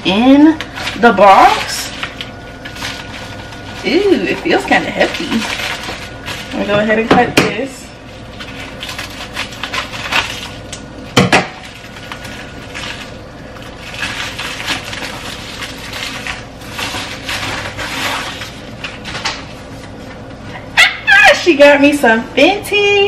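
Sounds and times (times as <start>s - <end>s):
packaging rustling and scraping: 0.4s - 7.1s, 8.0s - 10.7s, 11.5s - 20.6s.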